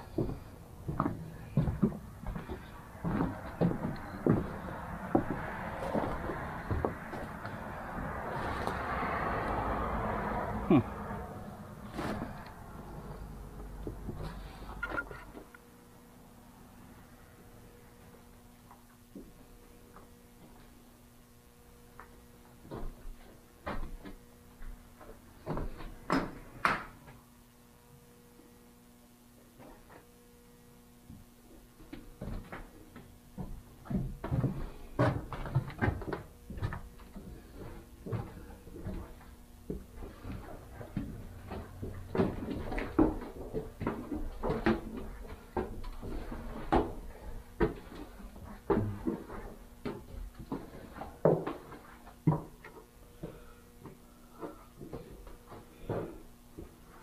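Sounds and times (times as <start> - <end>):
footsteps on wooden stairs: 0.0 - 9.0, 31.9 - 56.9
faint steady hum: 0.0 - 57.0.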